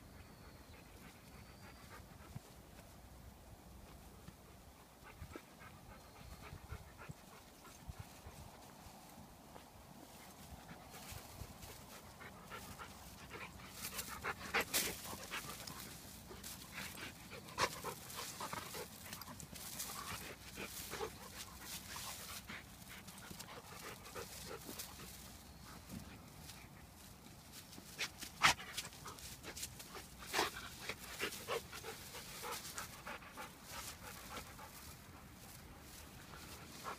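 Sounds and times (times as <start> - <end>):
dry grass rustling: 7.5 - 36.9
dog panting: 10.1 - 27.0, 27.9 - 36.9.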